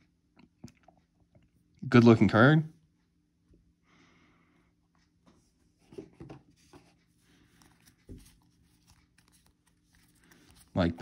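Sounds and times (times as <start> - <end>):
cards rustling and tapping: 5.9 - 11.0.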